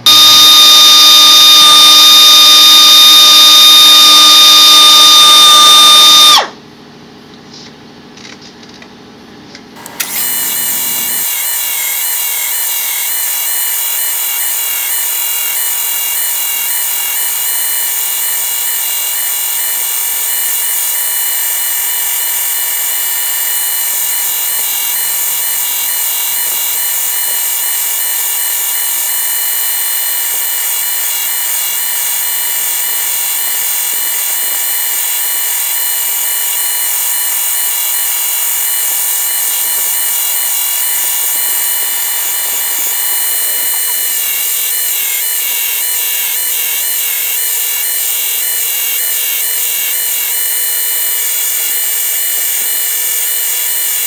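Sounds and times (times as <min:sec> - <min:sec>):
buffing machine whining: 0:00.0 - 0:06.6, 0:09.8 - 0:15.5, 0:35.6 - 0:51.9.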